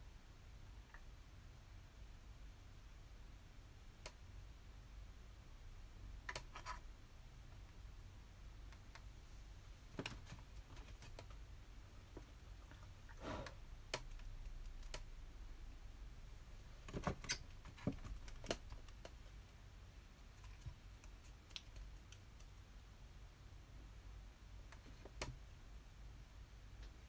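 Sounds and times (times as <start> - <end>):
low steady hum: 0.0 - 27.0
faint clicks and light taps: 4.0 - 4.3, 8.6 - 9.1, 13.9 - 15.1, 16.8 - 22.8, 24.6 - 25.5.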